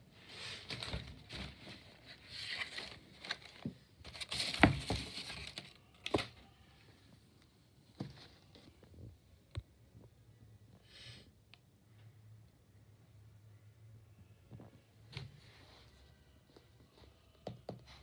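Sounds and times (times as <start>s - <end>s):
rustling handling noise: 0.0s - 6.5s.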